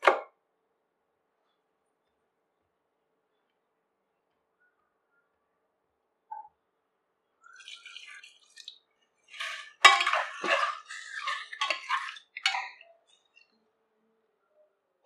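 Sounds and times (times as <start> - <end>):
chicken frying in oil: 7.5 - 13.4
spatula knocking and scraping pot: 9.3 - 12.8.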